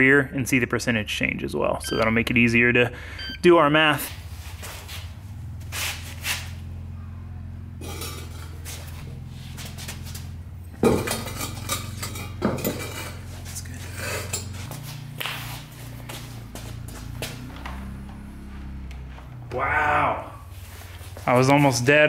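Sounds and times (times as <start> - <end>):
low hum: 1.8 - 22.0
metal clanking: 7.8 - 8.8, 10.7 - 14.7.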